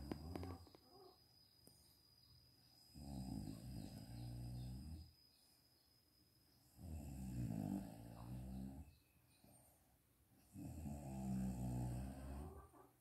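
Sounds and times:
woman snoring: 0:02.9 - 0:05.1, 0:06.8 - 0:08.8, 0:10.5 - 0:12.6.

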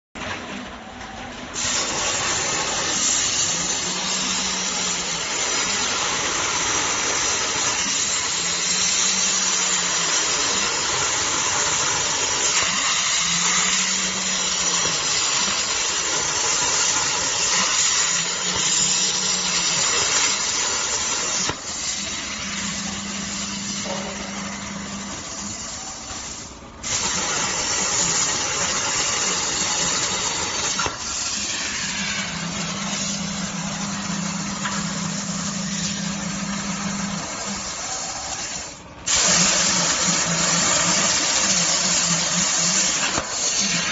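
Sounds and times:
plasma torch hissing: 0:01.5 - 0:43.9.

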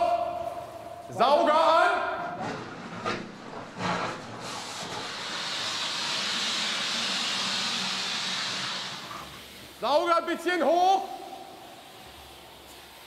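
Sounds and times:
vacuum hose sucking water: 0:03.9 - 0:10.0.

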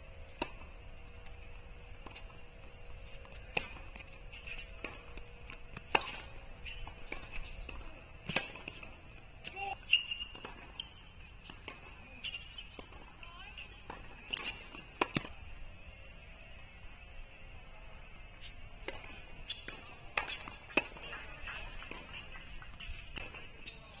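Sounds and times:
tennis ball hit by racket: 0:03.1 - 0:09.6.

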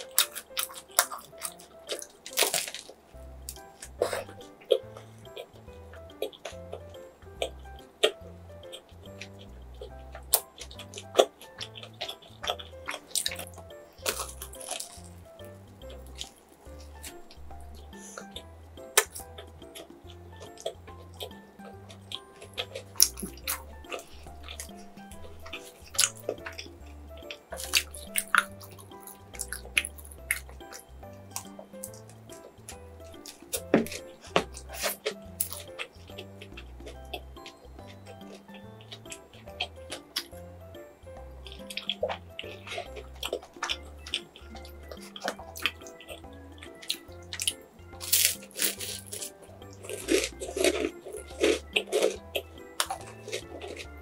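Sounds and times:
bread tearing with crackles: 0:00.0 - 0:40.4, 0:41.4 - 0:54.0
background music: 0:00.0 - 0:54.0
close-miked chewing: 0:00.0 - 0:54.0
crunchy bite into bread: 0:46.6 - 0:54.0.

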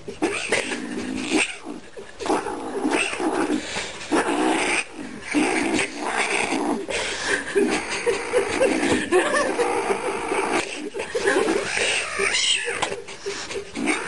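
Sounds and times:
kitten yowling and growling: 0:00.2 - 0:06.9, 0:11.6 - 0:13.0, 0:13.8 - 0:14.0.

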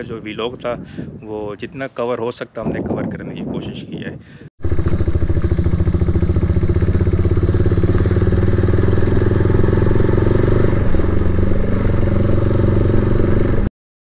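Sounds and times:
motorcycle engine running: 0:04.6 - 0:13.7.

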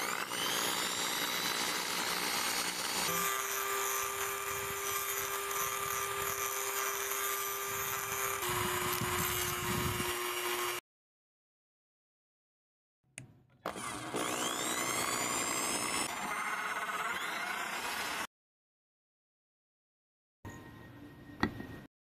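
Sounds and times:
electric drill whining: 0:00.0 - 0:10.8, 0:13.6 - 0:18.3.

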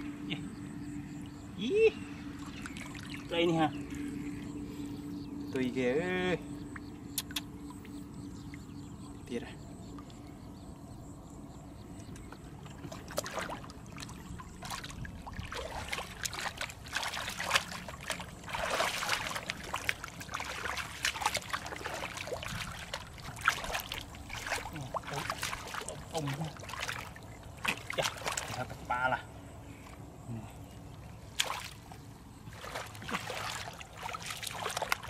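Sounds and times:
hands squelching in wet mud: 0:12.8 - 0:28.8, 0:31.3 - 0:35.0.

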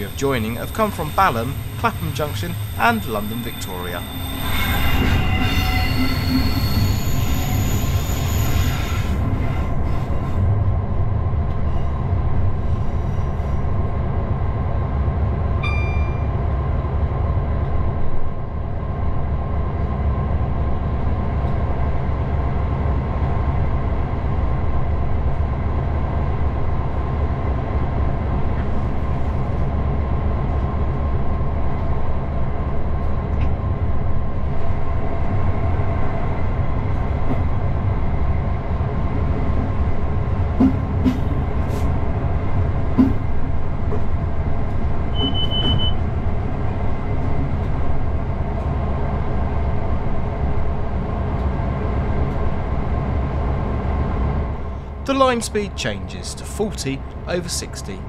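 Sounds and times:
train wheels squealing: 0:00.0 - 0:10.4, 0:45.1 - 0:46.0
train wheels on track: 0:00.0 - 0:58.0.

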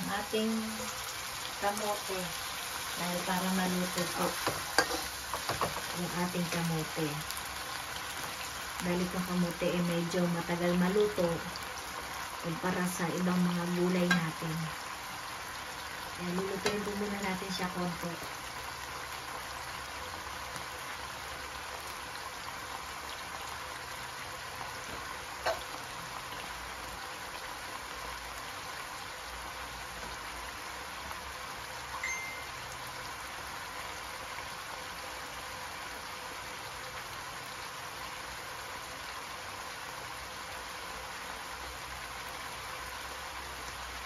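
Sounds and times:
bubbling sizzle in a wok: 0:00.0 - 0:44.0
short high beep: 0:32.0 - 0:32.6.

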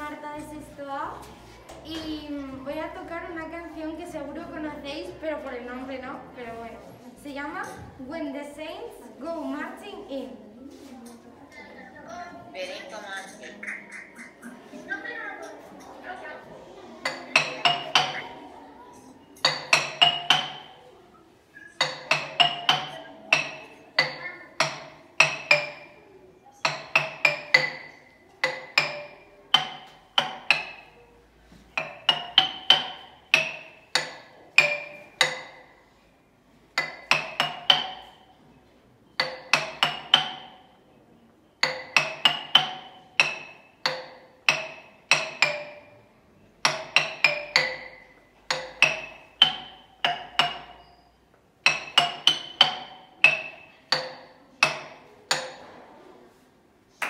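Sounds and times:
xylophone melody: 0:17.1 - 0:18.5, 0:19.3 - 0:20.9, 0:21.6 - 0:25.9, 0:31.7 - 0:35.6, 0:41.6 - 0:46.0, 0:46.7 - 0:55.4.

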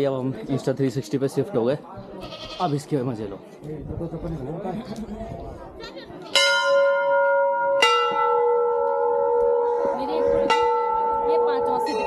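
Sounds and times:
metal temple bells ringing: 0:06.3 - 0:12.0.

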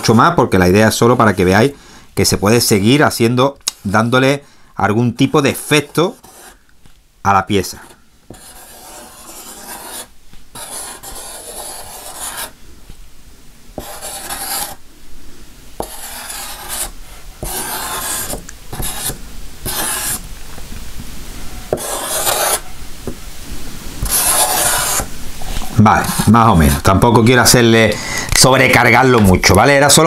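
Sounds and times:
scratchy rubbing strokes: 0:05.4 - 0:06.6, 0:07.6 - 0:12.6, 0:13.8 - 0:14.8, 0:15.8 - 0:20.3, 0:21.7 - 0:22.8, 0:24.0 - 0:26.6.

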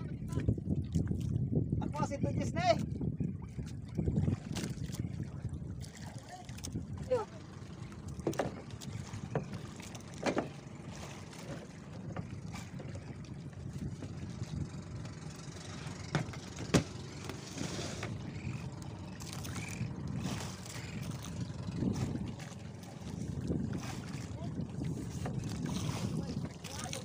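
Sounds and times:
sea waves: 0:00.0 - 0:27.0
wind: 0:00.0 - 0:27.0
knocks on wooden boat: 0:08.2 - 0:10.6, 0:16.0 - 0:17.4.

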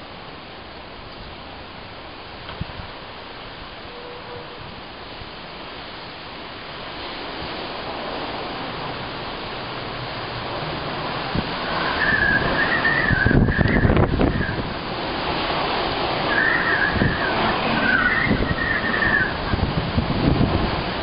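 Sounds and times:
wind and rain rushing: 0:00.0 - 0:21.0
gusts buffeting microphone: 0:02.0 - 0:03.8, 0:04.5 - 0:21.0
high wavering wind whistle: 0:03.8 - 0:04.8, 0:10.8 - 0:21.0.

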